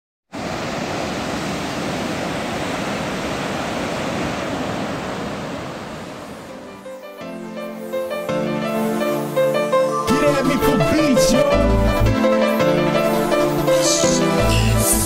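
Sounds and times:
river rushing over boulders: 0.3s - 6.6s.

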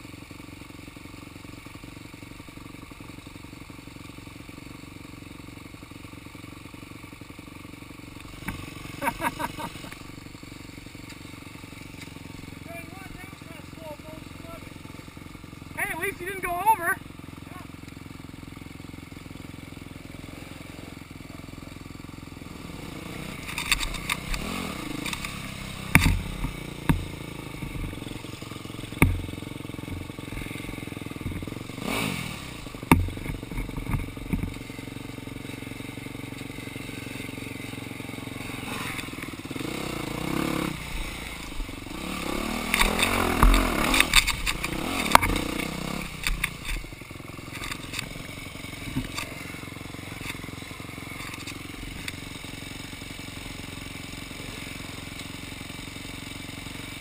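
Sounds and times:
dirt bike engines running: 0.0s - 57.0s
bikes knocking over logs: 23.3s - 32.0s, 32.6s - 34.7s, 41.0s - 52.3s.

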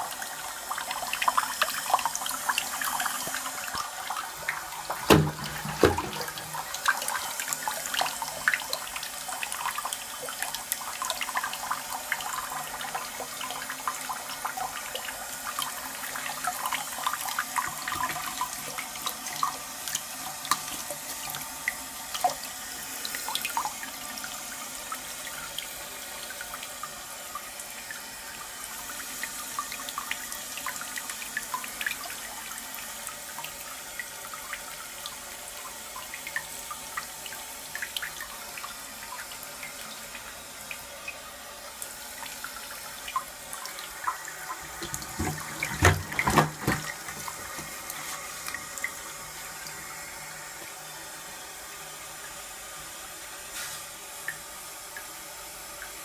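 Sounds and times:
water trickling into toilet cistern: 0.0s - 53.1s
water dripping: 28.9s - 49.9s, 54.2s - 56.0s.

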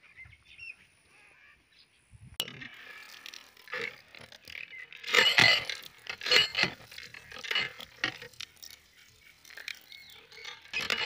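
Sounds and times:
water gushing from pipe: 2.6s - 11.0s
water splashing on ground: 2.7s - 11.0s.

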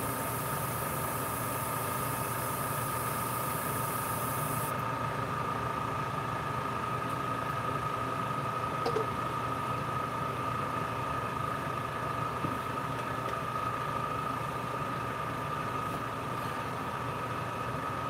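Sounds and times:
high hiss: 0.0s - 4.7s
small electric motor whine: 0.0s - 4.8s.

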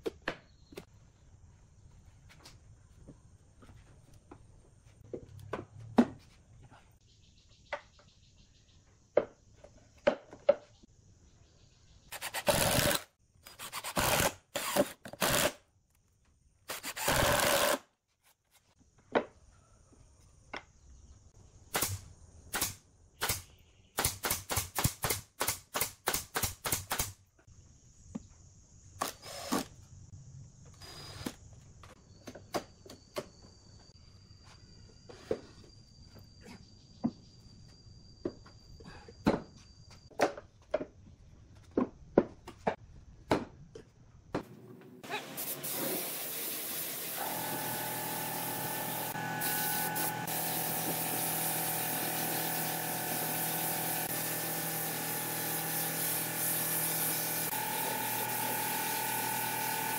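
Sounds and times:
nail gun shooting into wood: 21.7s - 27.2s.

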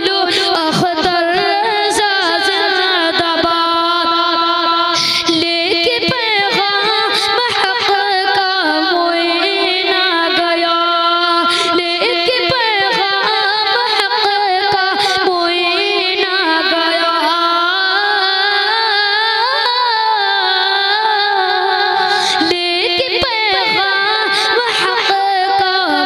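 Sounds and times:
boy singing a devotional hymn: 0.0s - 26.0s.

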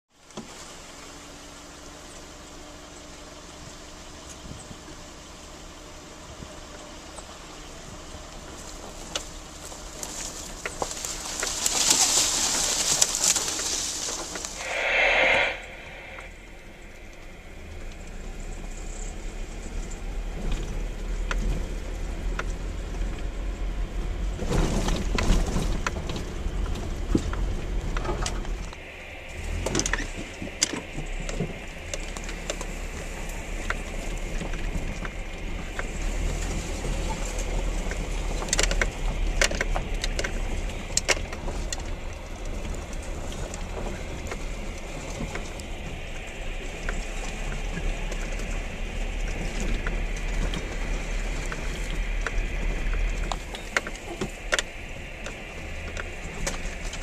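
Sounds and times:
vehicle engine and road rumble: 0.1s - 57.0s.

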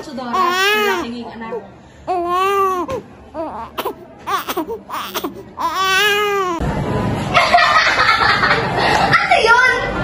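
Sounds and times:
newborn baby crying: 0.0s - 6.6s
noisy room sound: 0.0s - 10.0s.

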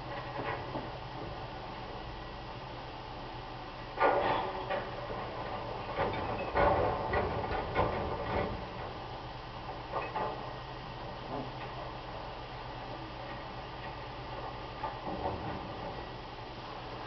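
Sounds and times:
metallic clanks and rattles: 4.0s - 9.0s, 9.8s - 10.6s, 13.8s - 16.1s.

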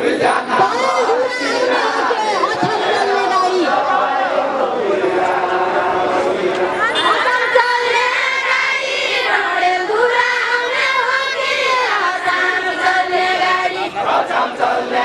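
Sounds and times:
crowd noise: 0.0s - 15.0s
women singing folk song: 5.2s - 15.0s.

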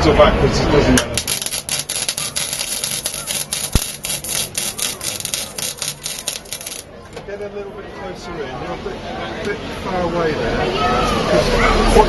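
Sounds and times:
welder arc crackling and hissing: 1.0s - 6.9s.

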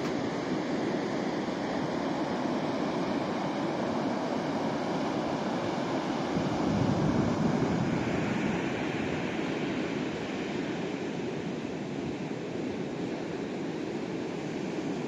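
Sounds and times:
sea surf breaking: 4.6s - 11.2s.

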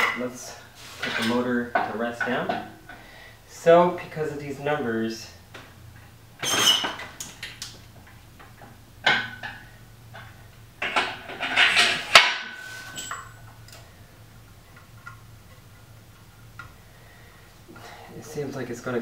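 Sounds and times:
metallic clunks and chain rattles: 9.2s - 13.8s.

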